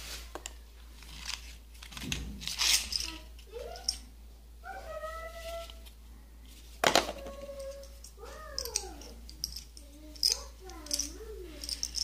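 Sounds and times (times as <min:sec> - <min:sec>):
plastic pins rattling in palm: 0:01.0 - 0:04.1, 0:06.8 - 0:12.0.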